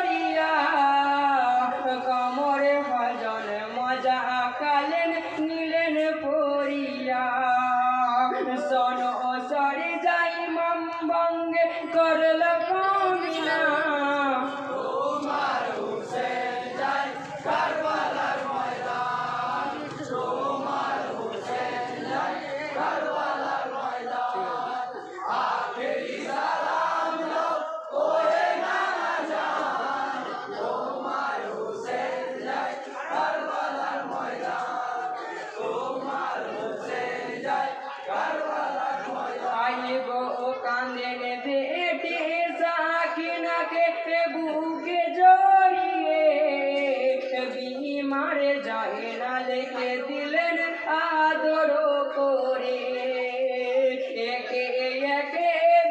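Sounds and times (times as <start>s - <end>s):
men chanting in unison: 0.0s - 10.4s, 14.2s - 41.0s
men singing a lament: 0.0s - 55.9s.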